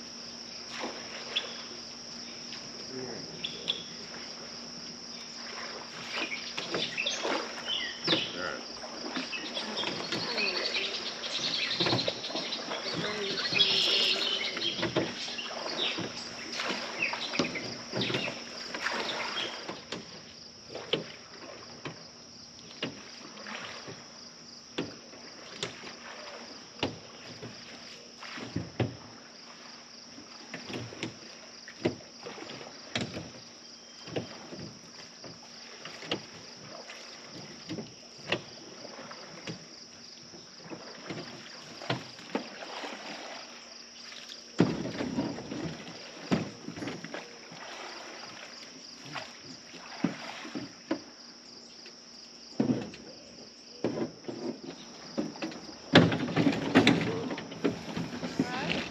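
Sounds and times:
light water splashing: 0.6 - 52.0
oars knocking in oarlocks: 6.2 - 21.1, 53.8 - 58.9.

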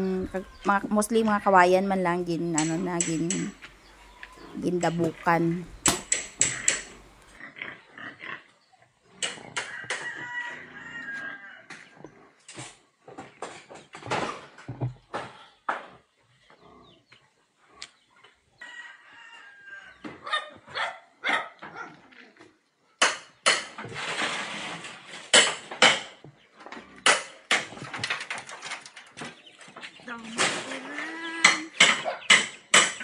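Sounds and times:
sharp knocks and bangs: 4.8 - 7.1, 23.0 - 26.4, 27.0 - 28.6, 30.2 - 33.0
rooster crowing: 9.6 - 11.8, 18.6 - 20.2.

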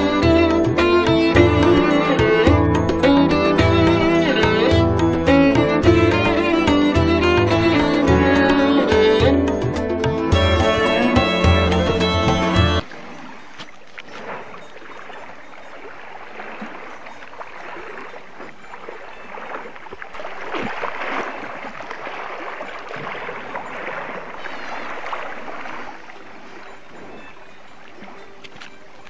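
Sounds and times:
water splashing as cow swims: 12.8 - 29.0.

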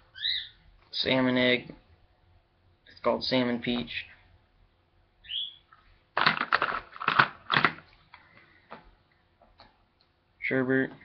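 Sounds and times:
high chirp falling in pitch: 0.1 - 0.6, 5.2 - 5.7
plastic jars clattering and clicking: 6.2 - 7.8.

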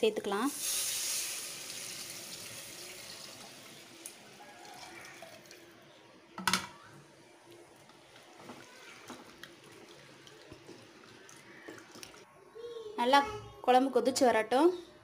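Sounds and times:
liquid pouring into pot: 7.8 - 12.2.

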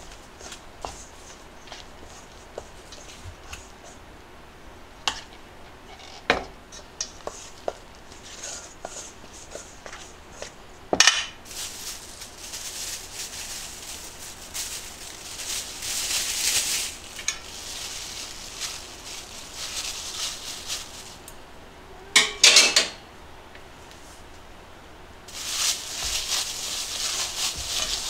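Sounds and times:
plastic bag crinkling: 11.4 - 21.3, 25.3 - 28.0.

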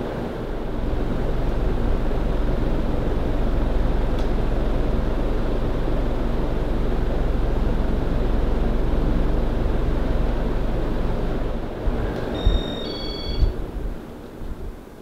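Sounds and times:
ceiling fan motor hum and air: 0.0 - 15.0
short electronic beeps: 12.4 - 13.6.

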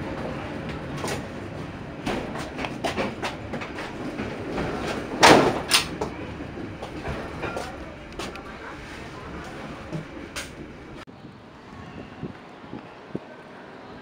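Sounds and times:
train wheels clacking over rail joints: 0.0 - 8.5
train running rumble: 0.0 - 14.0.

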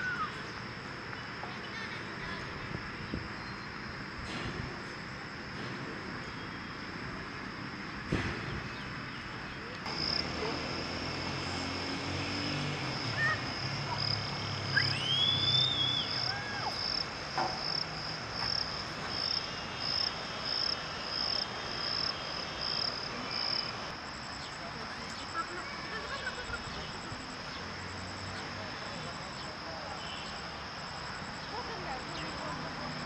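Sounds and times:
whistle sweeping up and down: 14.7 - 16.5.

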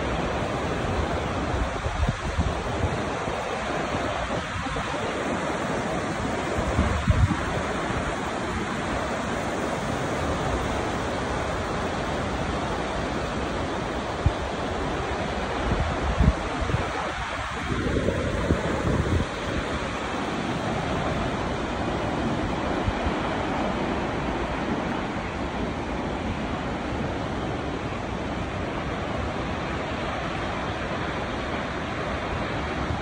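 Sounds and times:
waterfall rushing: 0.0 - 33.0
wind thumps on microphone: 6.6 - 8.1.

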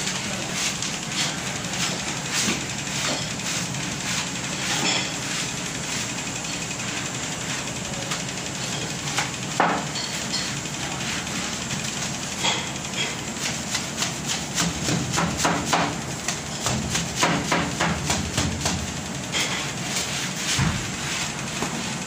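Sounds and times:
broom sweeping a hard floor: 0.0 - 6.3, 7.4 - 8.2, 9.1 - 22.0
steady background hum: 0.0 - 22.0.

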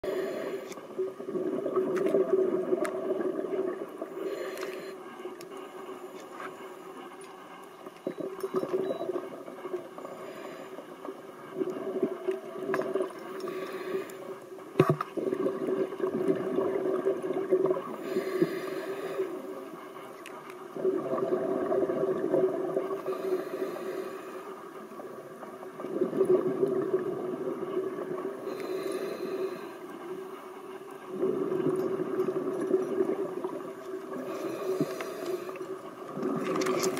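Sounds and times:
exhaled bubbles gurgling underwater: 0.0 - 6.2, 7.8 - 36.9
hissy regulator inhalations: 13.4 - 14.4, 18.0 - 19.7, 23.0 - 24.7, 28.5 - 30.2, 34.1 - 35.8.

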